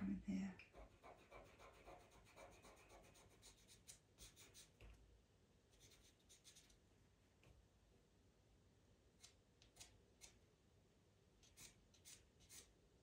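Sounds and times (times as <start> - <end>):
pencil scratching on paper: 0.6 - 4.8, 5.7 - 6.8, 11.4 - 12.8.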